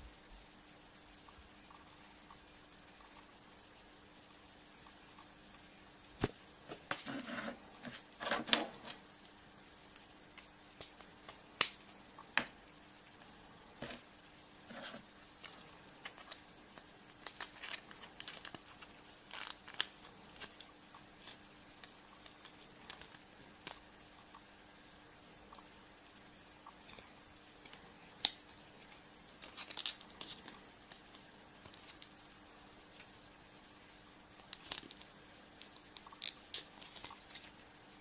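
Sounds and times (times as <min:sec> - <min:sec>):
foil wrapper crinkling: 0:14.9 - 0:23.2, 0:29.3 - 0:32.1.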